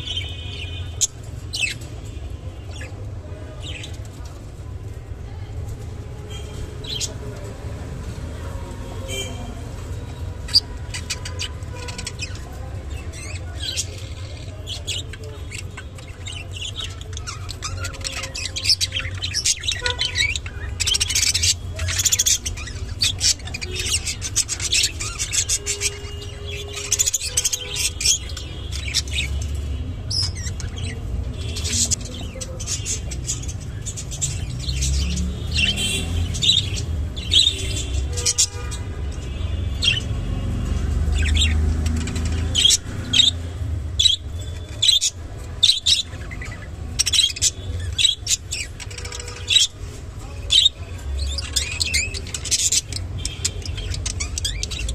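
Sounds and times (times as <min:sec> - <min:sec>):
budgerigars chirping: 0:10.4 - 0:40.2, 0:41.1 - 0:54.9.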